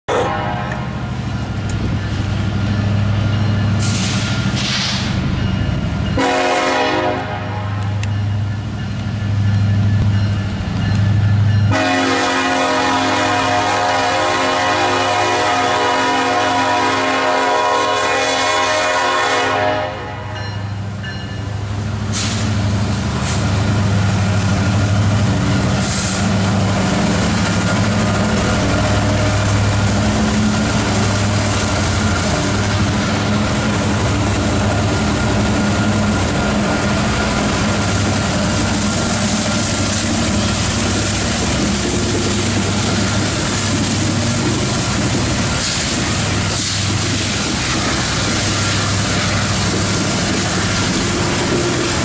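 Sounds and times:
locomotive horn: 0.1 - 0.9, 6.2 - 8.1, 11.7 - 20.5
diesel locomotive engine drone: 0.1 - 52.0
brief hiss: 22.1 - 22.5.

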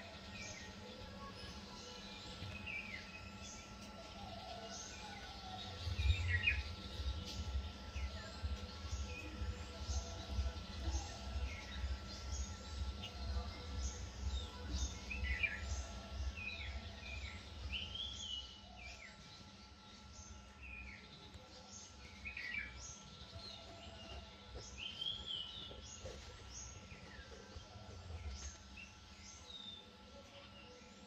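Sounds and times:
wild birds chirping: 0.0 - 31.0.

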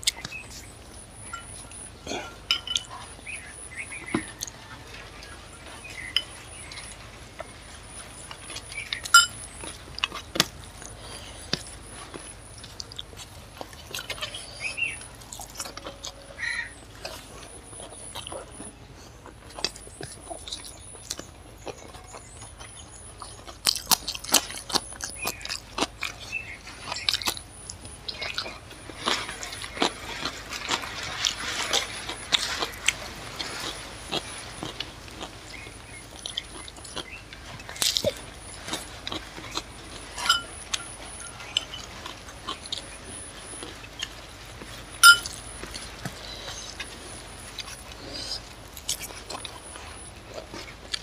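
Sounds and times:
chewing and wet mouth clicks: 0.0 - 0.7.

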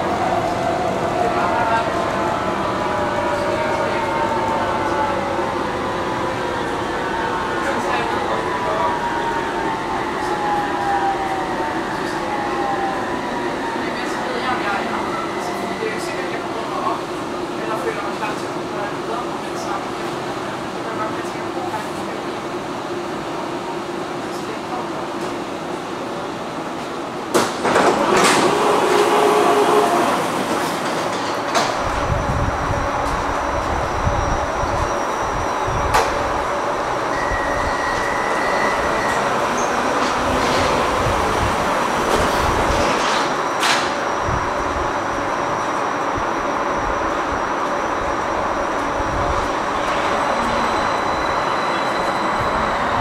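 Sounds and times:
train whine: 26.8 - 53.0
train clunk: 27.3 - 29.2, 30.5 - 32.1, 42.0 - 44.1.

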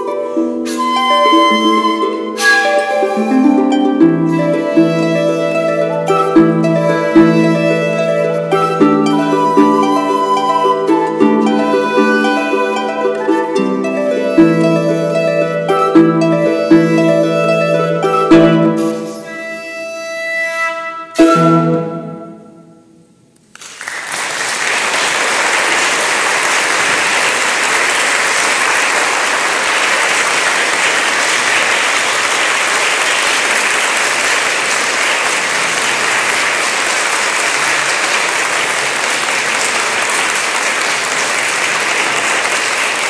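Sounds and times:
shakuhachi note: 0.0 - 23.1
audience applauding: 0.8 - 15.9, 23.5 - 43.0.

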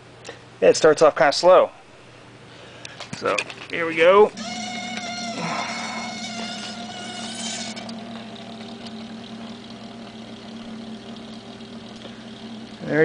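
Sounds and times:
spinner light motor humming: 3.5 - 13.0
higher whine: 3.8 - 13.0.

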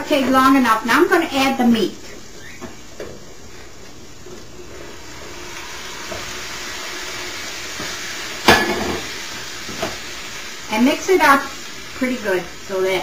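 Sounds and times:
meat sizzling in a skillet: 4.1 - 13.0
sharp metallic clank: 8.4 - 9.0.

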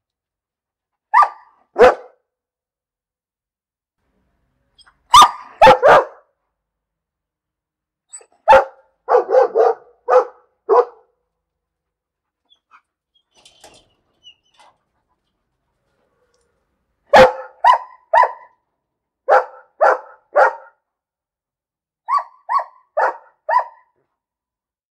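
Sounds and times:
dog barking: 1.1 - 2.2, 5.1 - 6.3, 8.4 - 11.1, 17.1 - 18.6, 19.2 - 20.8, 22.0 - 24.0.

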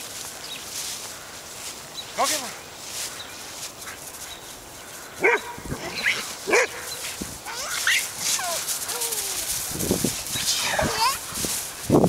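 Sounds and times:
dog barking: 5.2 - 7.0
dog yipping: 7.5 - 9.4.

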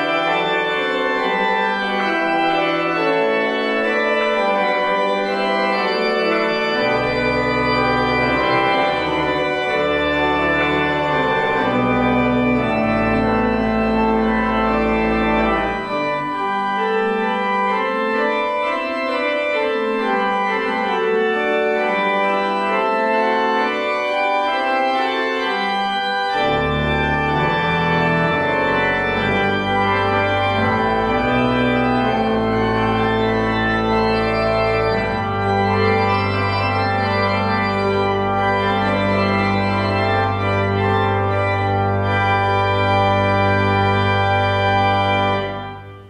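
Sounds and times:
organ playing sustained chords: 0.0 - 46.0.

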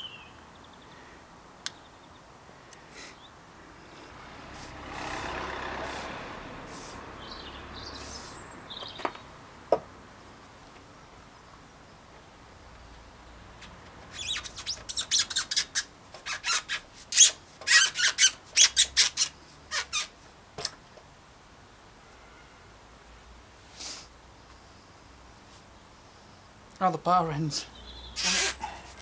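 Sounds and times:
spray hiss: 5.8 - 7.0
rubber grip squeaking: 14.0 - 20.7, 28.1 - 29.0.

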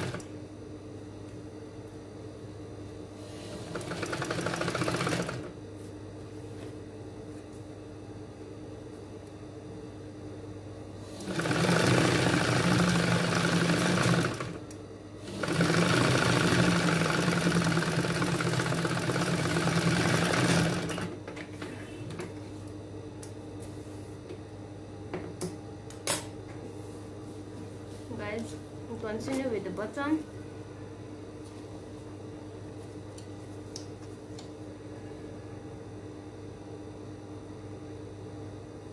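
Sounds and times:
sewing machine stitching: 3.5 - 5.5, 11.2 - 14.6, 15.2 - 21.1.

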